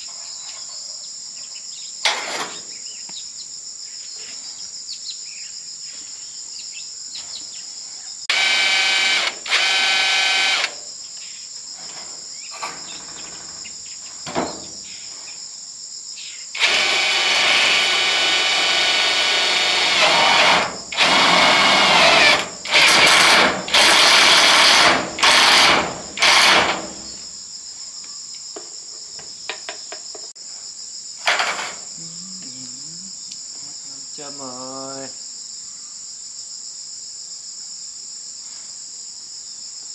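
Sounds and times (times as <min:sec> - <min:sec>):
crickets or cicadas droning: 0:00.0 - 0:39.9
power drill running: 0:08.3 - 0:10.8, 0:16.6 - 0:27.2.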